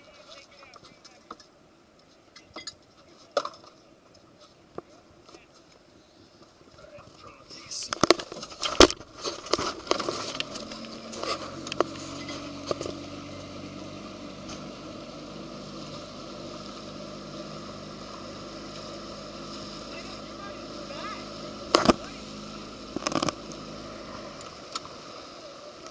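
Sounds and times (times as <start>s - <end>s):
boat motor humming: 8.0s - 25.9s.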